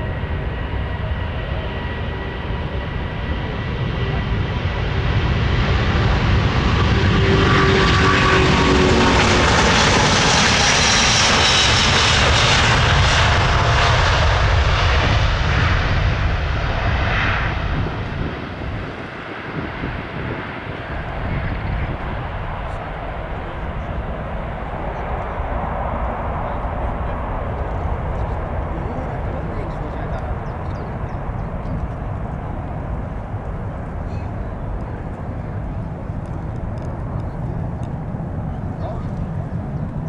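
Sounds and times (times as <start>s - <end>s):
jet airliner taking off: 0.0s - 40.0s.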